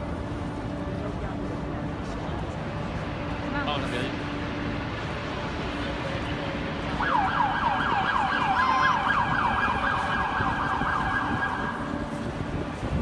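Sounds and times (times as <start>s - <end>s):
emergency siren yelping: 6.8s - 12.1s.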